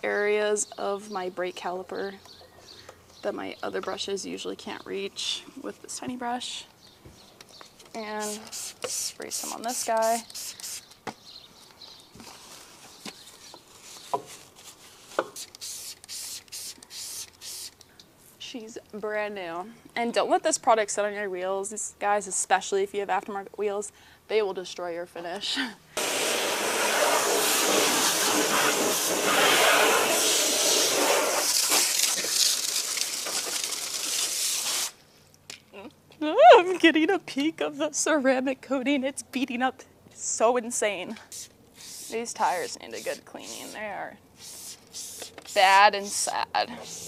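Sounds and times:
hose nozzle spraying water: 8.1s - 10.9s, 26.0s - 35.0s, 41.3s - 43.8s, 44.4s - 46.2s.

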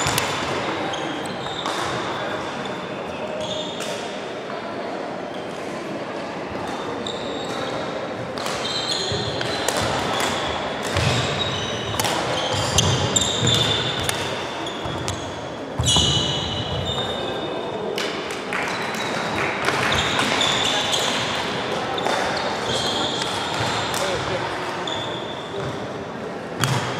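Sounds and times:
rackets striking shuttlecock: 9.4s - 15.2s.

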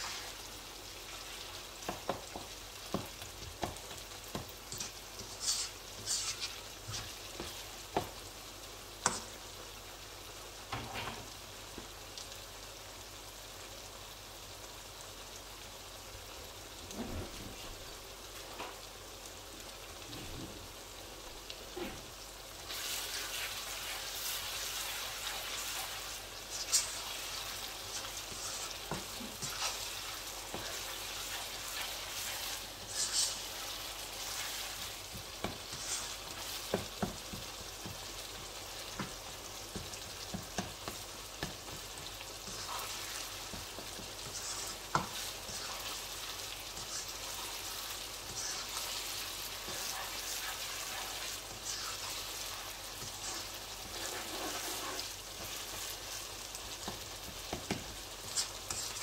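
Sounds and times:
sauce sizzling in oil: 0.0s - 59.0s
spatula scraping pan: 4.7s - 7.6s, 22.7s - 37.4s, 39.8s - 56.9s, 57.5s - 59.0s.

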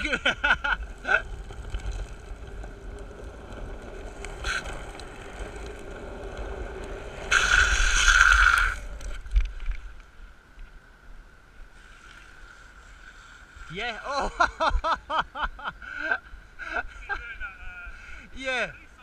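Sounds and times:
skateboard wheels hissing slide: 0.0s - 10.4s, 11.5s - 14.9s
skateboard wheels rolling on asphalt: 0.0s - 15.6s.

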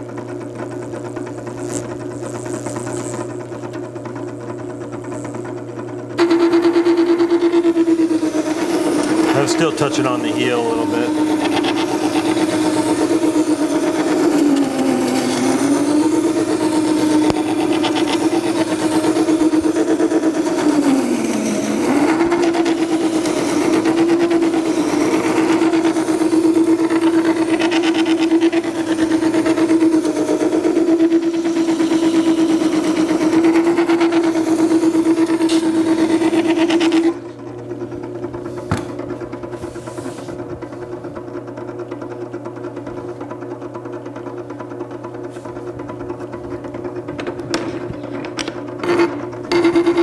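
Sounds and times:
quiet motor hum: 0.0s - 50.0s
wet stone grinder grinding steel: 6.2s - 37.3s, 48.8s - 50.0s.

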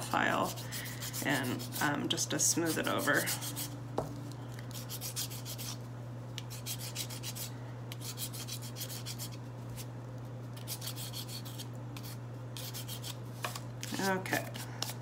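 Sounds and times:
nail file rasping on stone: 0.3s - 3.7s, 4.7s - 5.8s, 6.4s - 9.4s, 10.6s - 13.2s.

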